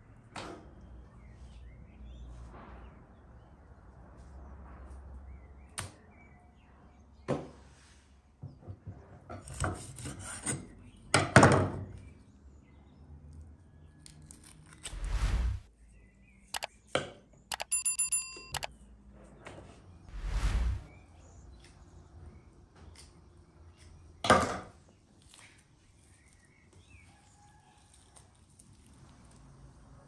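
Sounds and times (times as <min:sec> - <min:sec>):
high ringing rattle: 0:17.5 - 0:18.7.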